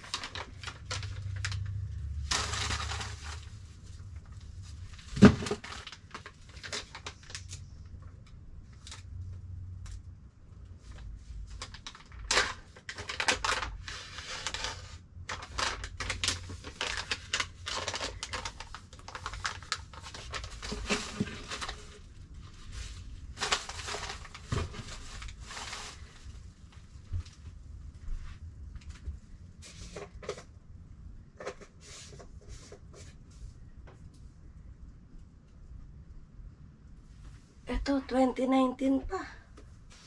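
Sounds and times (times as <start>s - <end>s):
packages being handled: 0.0s - 7.6s, 10.8s - 27.2s.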